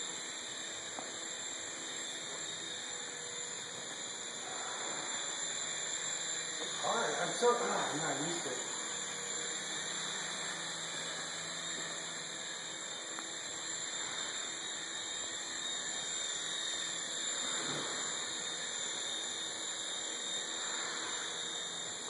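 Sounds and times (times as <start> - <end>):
toy helicopter rotor whine: 0.0 - 22.0.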